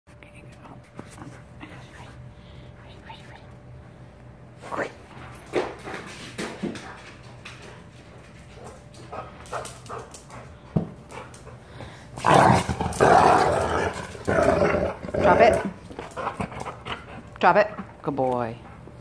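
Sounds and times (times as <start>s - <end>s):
dog play-growling: 4.6s - 18.0s.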